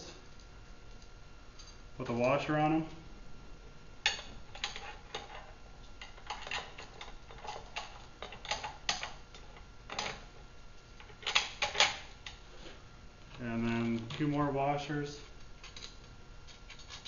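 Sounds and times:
metal parts clicking and tapping: 4.0 - 10.2, 11.0 - 12.4, 15.6 - 17.0.

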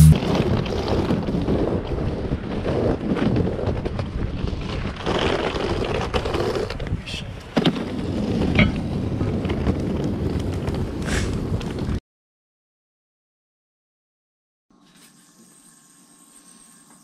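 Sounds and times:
street noise: 0.0 - 0.3
wind rumbling on microphone: 0.1 - 12.0.

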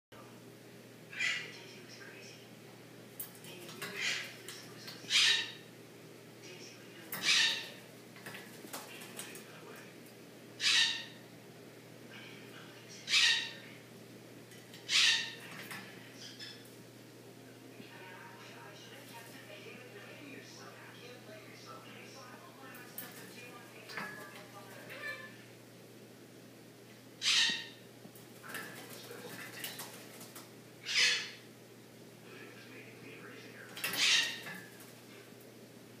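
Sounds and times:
wings flapping: 7.1 - 9.5, 28.1 - 30.6.

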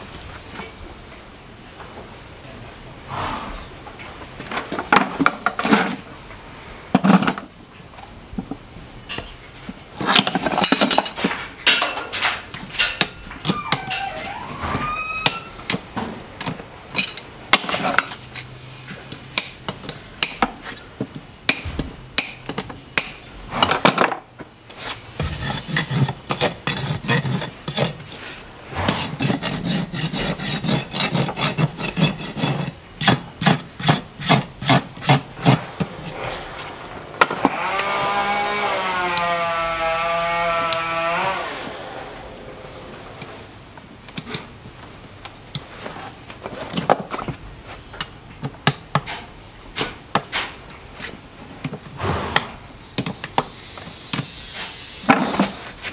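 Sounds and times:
hoof rasp strokes: 24.8 - 38.9.

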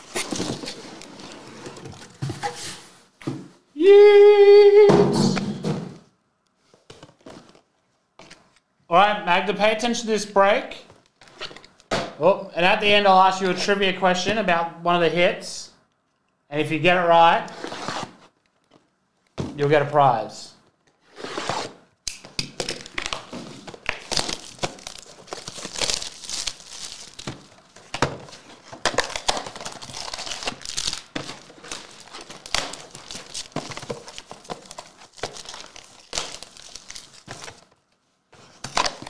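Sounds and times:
plastic wrapping crinkling and tearing: 22.6 - 37.9.

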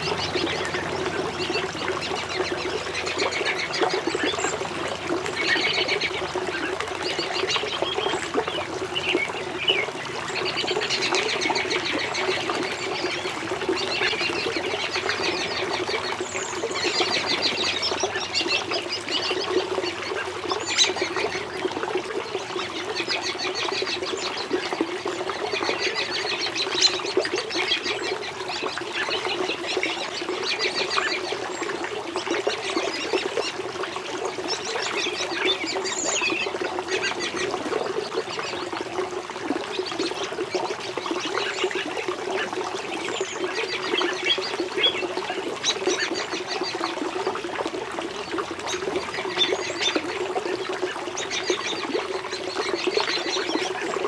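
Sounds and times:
birds chattering: 0.0 - 21.7
small waterfall splashing: 0.0 - 54.0.

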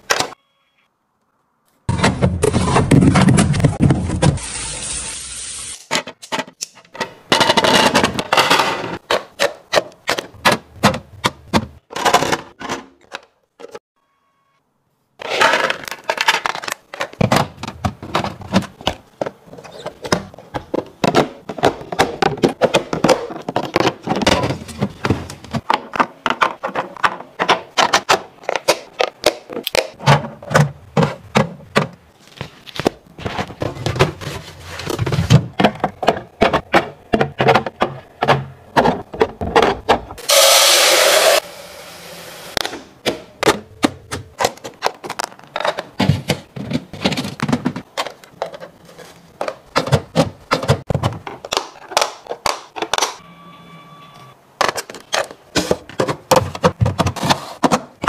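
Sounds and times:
plastic containers clicking: 15.6 - 32.0, 32.8 - 40.2, 42.6 - 53.2.

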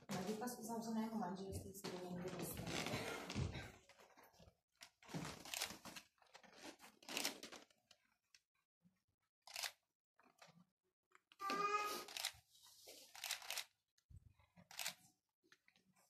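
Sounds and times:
rustling and handling noises: 0.0 - 8.7, 9.5 - 16.0.

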